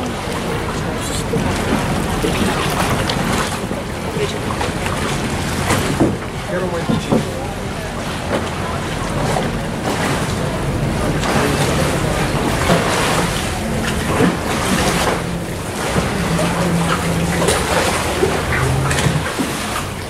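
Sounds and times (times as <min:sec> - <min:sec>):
water lapping against boat: 0:00.0 - 0:20.0
wind over microphone: 0:12.9 - 0:20.0.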